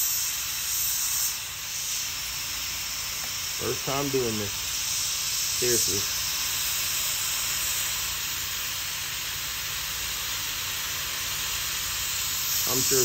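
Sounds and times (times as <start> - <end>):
hot-air welder hissing: 0.0 - 13.0.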